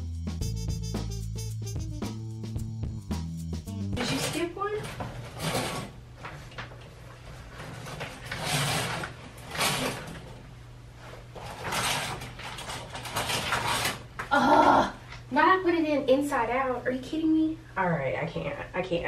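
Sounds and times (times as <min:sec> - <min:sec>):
curtain hooks scraping along metal rod: 0:04.0 - 0:06.4, 0:07.5 - 0:10.4, 0:11.0 - 0:14.2
fabric curtain rustling: 0:04.0 - 0:10.4, 0:11.0 - 0:14.1.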